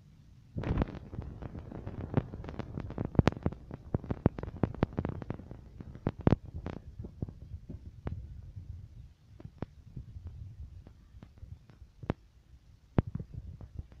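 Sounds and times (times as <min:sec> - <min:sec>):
camera handling rumble and clicks: 0:00.6 - 0:08.2.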